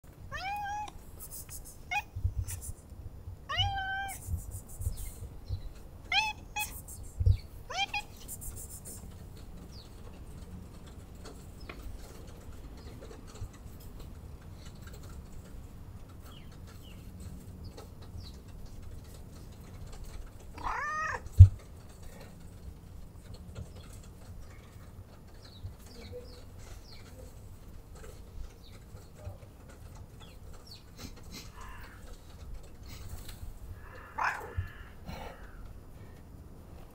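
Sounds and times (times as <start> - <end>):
cat meowing: 0.3 - 1.0, 1.9 - 2.6, 3.5 - 4.3, 6.1 - 6.8, 7.7 - 8.3, 20.6 - 21.3, 33.9 - 34.9.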